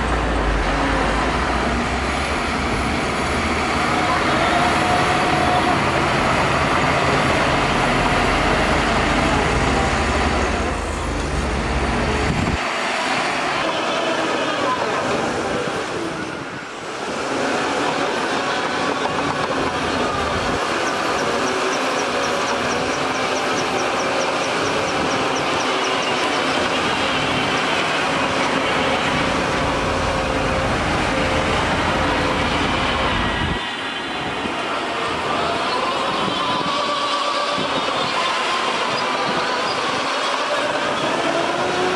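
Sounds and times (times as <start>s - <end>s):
diesel engines rumbling: 0.0s - 41.9s
bulldozer diesel engine rumbling: 19.1s - 33.6s.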